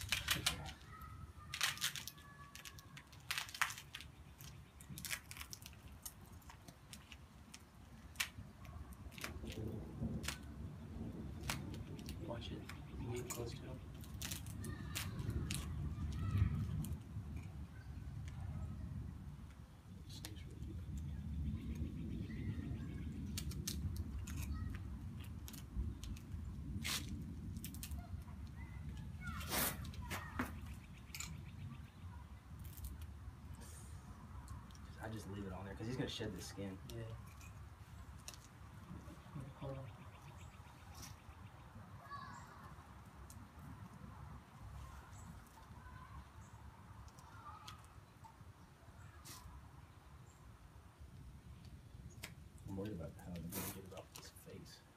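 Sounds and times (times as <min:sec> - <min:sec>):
duct tape ripping and crinkling: 0:00.0 - 0:10.6, 0:11.3 - 0:12.8, 0:13.4 - 0:17.5, 0:23.1 - 0:31.4, 0:32.5 - 0:33.2, 0:49.2 - 0:49.6, 0:53.2 - 0:54.4.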